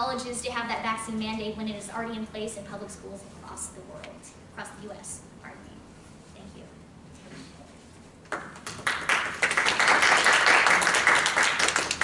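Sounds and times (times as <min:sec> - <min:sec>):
audience clapping: 0:08.3 - 0:12.0.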